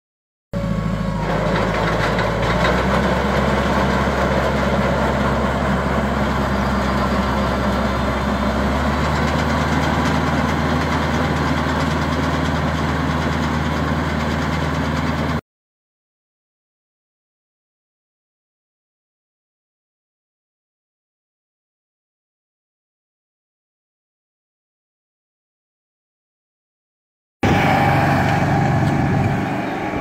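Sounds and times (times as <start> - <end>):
tractor engine running: 0.6 - 15.4, 27.4 - 30.0.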